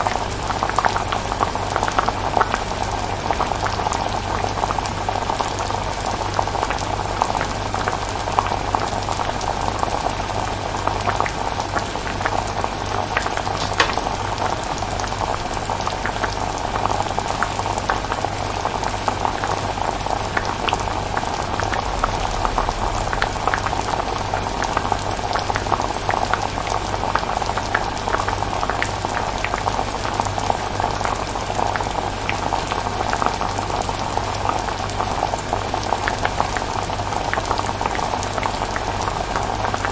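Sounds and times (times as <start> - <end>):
thick sauce bubbling and popping: 13.2 - 16.4
low steady hum: 19.9 - 26.3.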